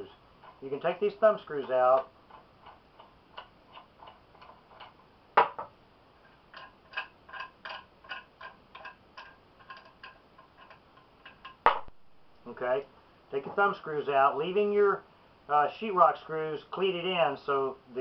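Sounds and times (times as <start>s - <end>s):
thumb screws clicking and ticking: 6.5s - 11.6s.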